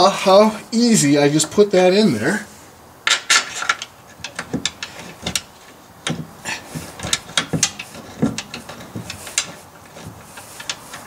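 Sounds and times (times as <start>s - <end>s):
metal clicks and clunks: 3.0s - 11.0s.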